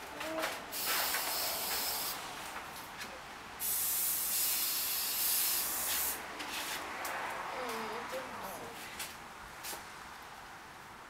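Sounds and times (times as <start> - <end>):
spray-paint can hissing: 0.7 - 2.2, 3.6 - 6.2.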